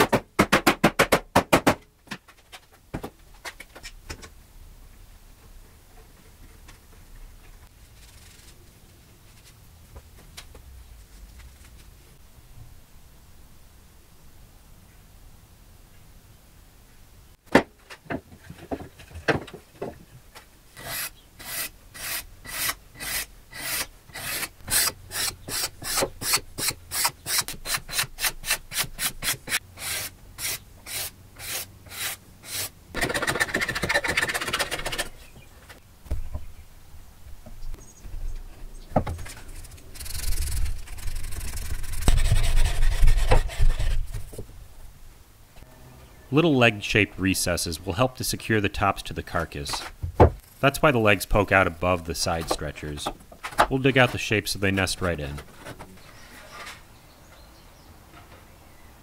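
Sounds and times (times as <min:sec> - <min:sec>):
sandpaper rubbing wood: 0:20.8 - 0:35.0, 0:39.5 - 0:44.2.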